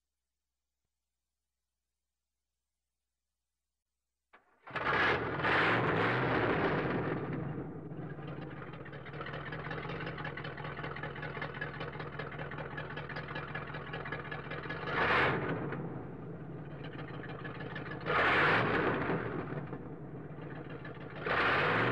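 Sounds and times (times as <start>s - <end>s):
car engine idling and revving: 4.7s - 21.9s.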